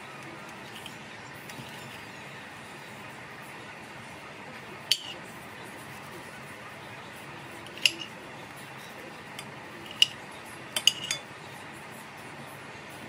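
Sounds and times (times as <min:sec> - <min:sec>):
cutlery clinking on a plate: 0:00.7 - 0:02.0, 0:04.9 - 0:05.2, 0:07.7 - 0:08.2, 0:09.3 - 0:11.3.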